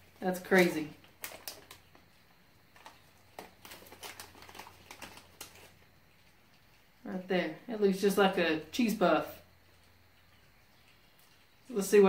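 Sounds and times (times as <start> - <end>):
plastic snack bag crinkling: 0.0 - 6.8.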